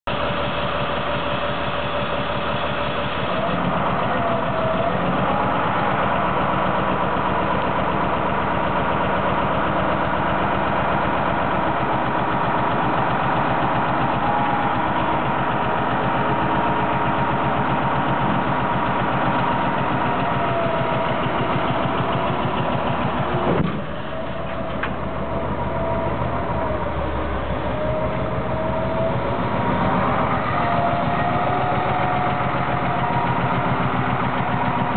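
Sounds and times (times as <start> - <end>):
diesel truck engine running: 0.0 - 34.9
hydraulic hoist whine: 0.4 - 34.9.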